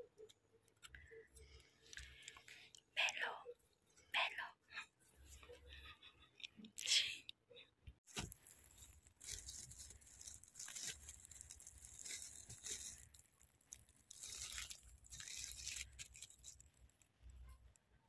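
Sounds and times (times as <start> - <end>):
dry leaves rustling: 8.3 - 13.2, 14.0 - 16.6.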